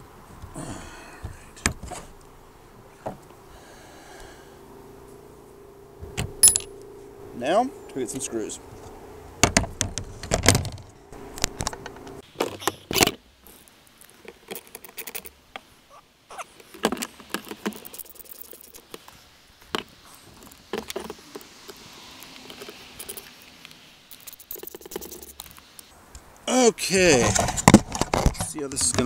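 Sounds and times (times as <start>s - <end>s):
small metal screws clinking: 6.4s - 6.8s, 17.3s - 19.0s, 22.4s - 23.5s, 24.1s - 25.6s.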